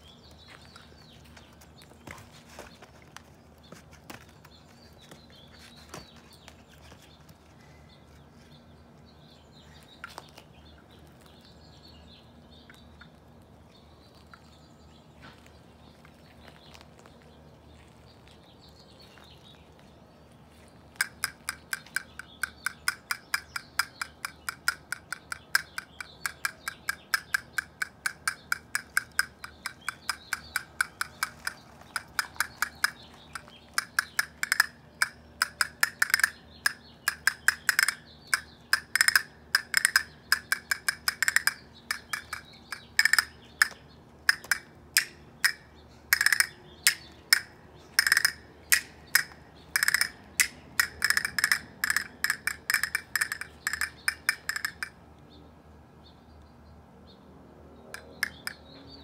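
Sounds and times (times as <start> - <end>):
castanets clicking: 21.0 - 54.9.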